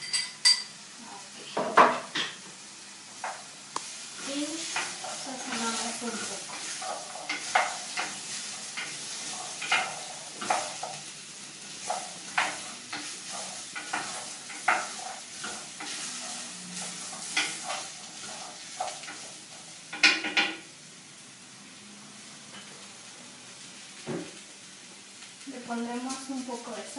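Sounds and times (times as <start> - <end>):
vegetables sizzling in oil: 0.0 - 26.9
wooden spoon scraping pot: 4.2 - 11.1, 11.7 - 19.4.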